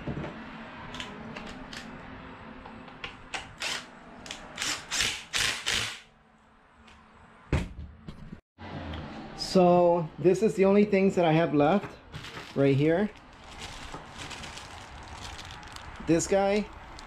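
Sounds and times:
cordless drill bursts: 0:03.6 - 0:03.9, 0:04.6 - 0:06.0.

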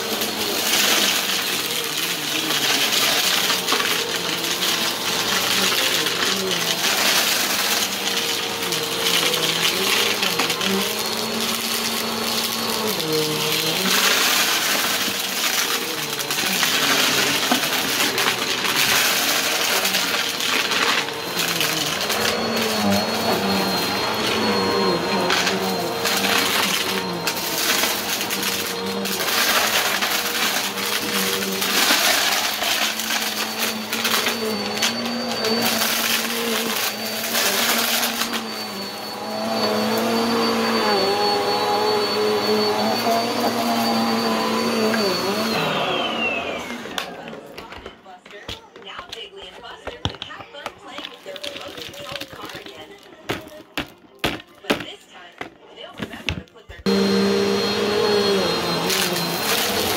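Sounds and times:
vacuum cleaner on carpet: 0:00.0 - 0:47.9, 0:56.0 - 0:59.9
debris rattling through vacuum: 0:00.2 - 0:38.6.

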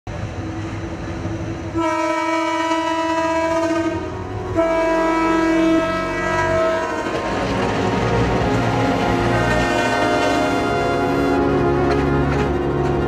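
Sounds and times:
train rumbling and clattering past: 0:00.1 - 0:13.0
locomotive air horn blasts: 0:01.8 - 0:07.4, 0:08.3 - 0:12.6.

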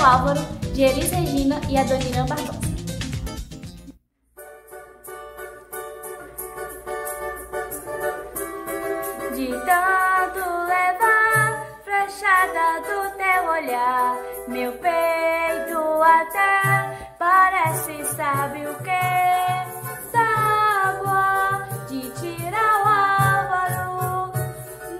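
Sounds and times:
plucked-string accompaniment: 0:00.0 - 0:24.9
girl singing: 0:09.1 - 0:24.9.

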